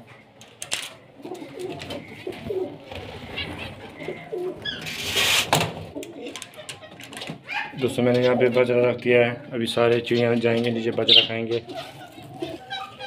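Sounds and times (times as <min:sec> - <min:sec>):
pigeons cooing: 0:00.0 - 0:13.0
rustling burst: 0:04.8 - 0:05.9.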